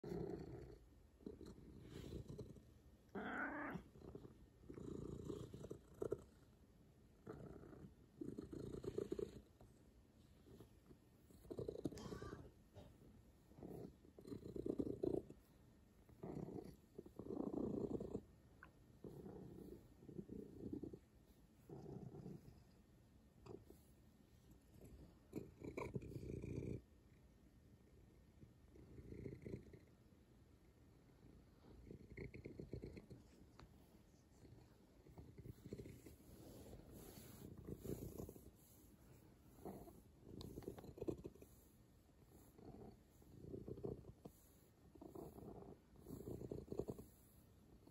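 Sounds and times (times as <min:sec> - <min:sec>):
cat purring: 0:00.0 - 0:47.9
cat meow: 0:03.2 - 0:03.8.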